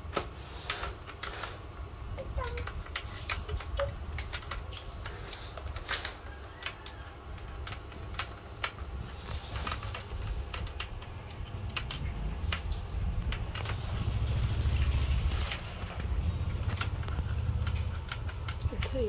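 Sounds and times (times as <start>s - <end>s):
low rumble of handling: 2.2s - 19.0s
light clicks and taps: 15.3s - 19.0s.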